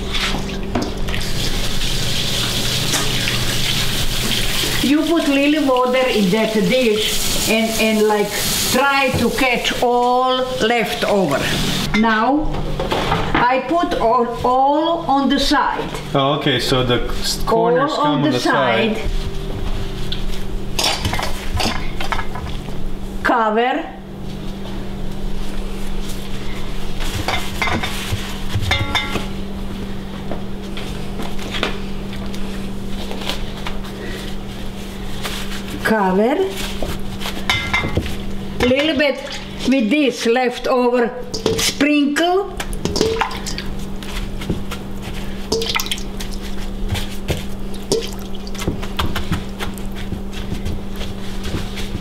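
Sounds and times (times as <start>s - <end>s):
wet filling splatting: 45.5s - 46.5s, 47.6s - 49.8s
hand patting pastry: 46.0s - 52.0s.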